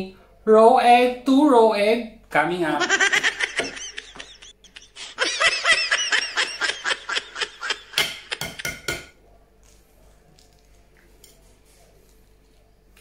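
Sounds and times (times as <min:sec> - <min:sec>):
man's high-pitched laughter: 0:02.8 - 0:08.7.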